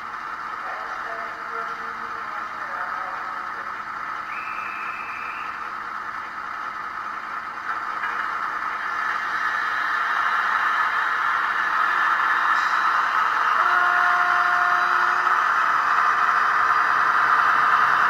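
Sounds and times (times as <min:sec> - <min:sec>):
wheels rattling on rails: 0:00.0 - 0:18.0.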